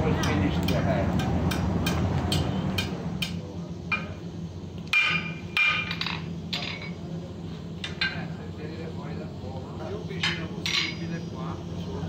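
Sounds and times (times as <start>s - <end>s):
hammer striking hot metal on anvil: 0.0s - 7.0s, 7.8s - 8.4s, 10.1s - 11.1s
anvil ringing: 4.9s - 6.9s.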